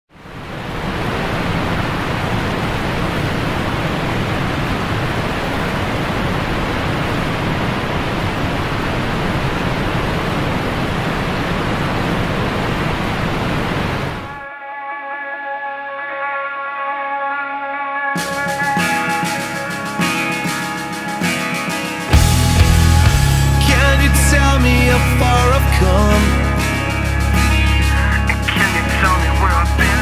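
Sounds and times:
steady rushing noise: 0:00.1 - 0:14.4, 0:18.2 - 0:30.0
music: 0:14.4 - 0:30.0.

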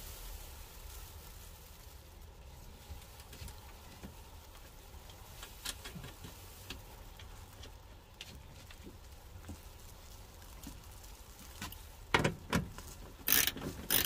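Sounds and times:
low steady rumble: 0:00.0 - 0:14.0
hand tools clicking and tapping: 0:13.2 - 0:14.0.

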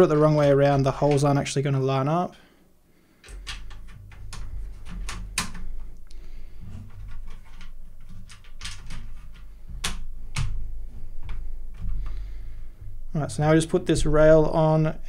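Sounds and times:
plastic parts knocking and clicking: 0:03.2 - 0:06.0, 0:06.6 - 0:12.4.

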